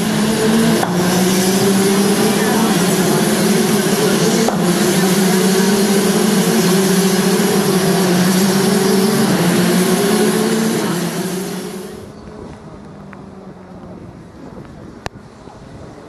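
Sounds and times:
wide hiss: 0:00.0 - 0:12.2
racing kart engines droning: 0:00.0 - 0:16.0.

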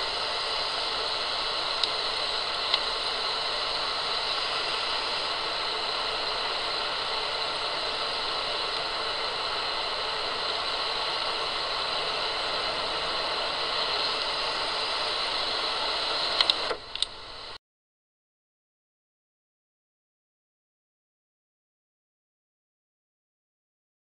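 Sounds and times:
steady hiss: 0:00.0 - 0:17.6
sharp click: 0:16.4 - 0:17.2.

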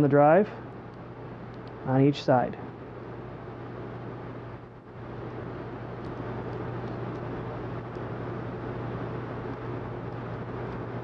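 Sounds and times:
low hum and hiss: 0:00.0 - 0:11.0.

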